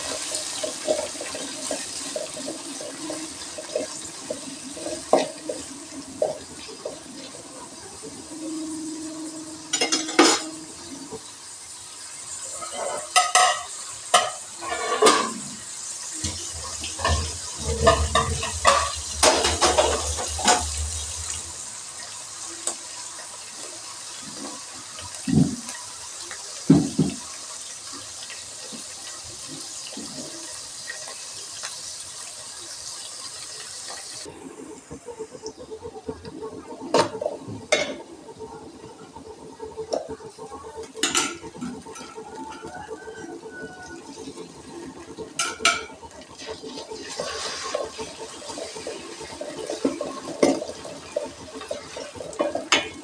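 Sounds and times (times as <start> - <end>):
onions sizzling in hot oil: 0.0 - 53.0
metal spoon scraping a pot: 14.6 - 15.5.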